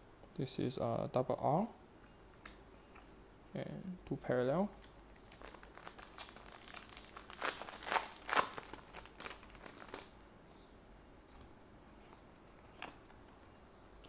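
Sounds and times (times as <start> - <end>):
foil wrapper crinkling and tearing: 4.8 - 10.2.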